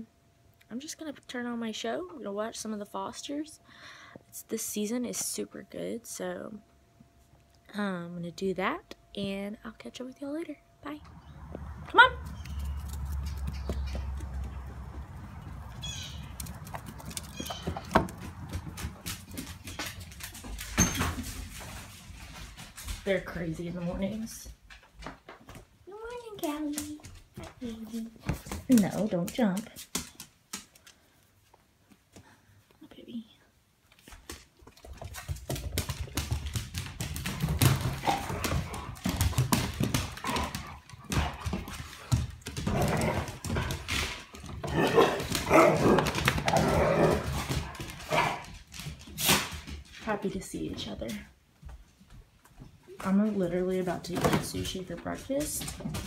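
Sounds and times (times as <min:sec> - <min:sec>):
dog claws clicking on wood floor: 0:12.3 - 0:23.1, 0:28.3 - 0:31.1, 0:33.9 - 0:50.1.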